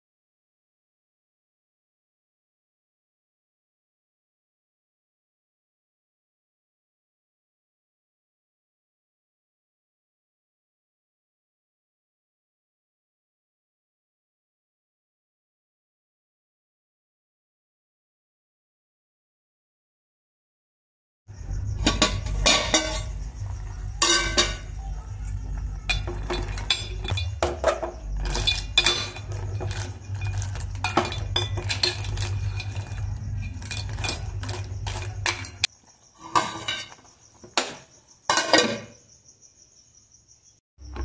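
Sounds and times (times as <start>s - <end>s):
steady low rumble: 21.3s - 35.7s
metal lid clanking onto pot: 21.8s - 23.4s, 24.0s - 24.8s, 25.9s - 37.0s, 37.6s - 38.9s
ladle scraping a steel pot: 21.8s - 37.7s, 38.3s - 38.9s.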